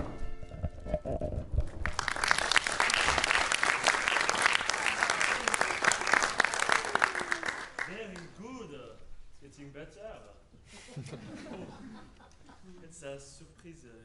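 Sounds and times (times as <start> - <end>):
audience applauding: 1.7 - 8.4.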